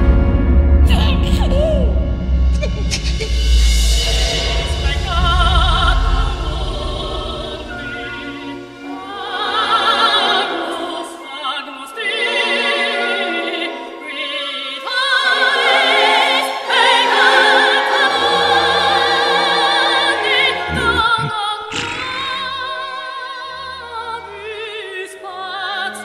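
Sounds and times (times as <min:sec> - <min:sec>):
operatic singing: 0:17.1 - 0:24.9.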